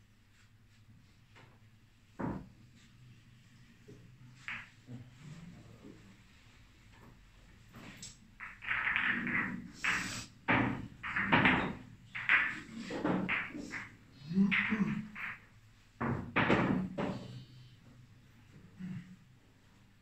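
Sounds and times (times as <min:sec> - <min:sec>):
low voices: 0:12.6 - 0:15.4.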